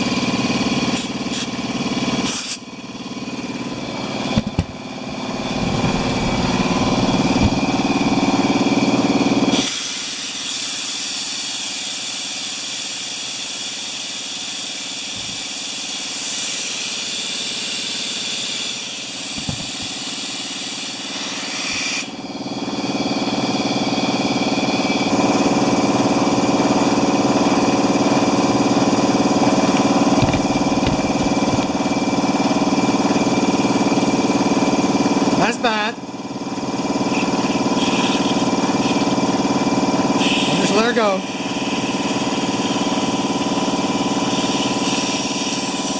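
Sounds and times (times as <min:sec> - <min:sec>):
air compressor motor humming: 0:00.0 - 0:45.9
loud air hiss: 0:02.2 - 0:02.6, 0:05.2 - 0:22.2, 0:40.1 - 0:45.9.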